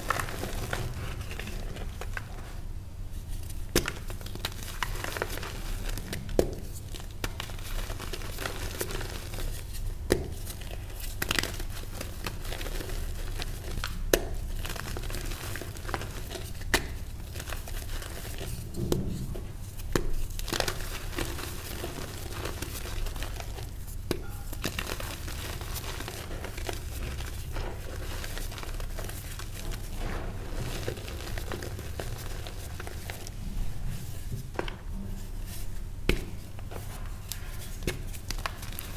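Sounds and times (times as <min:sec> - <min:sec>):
chalk crunching and rustling: 0:00.0 - 0:38.9
chalk pieces cracking: 0:19.8 - 0:33.4.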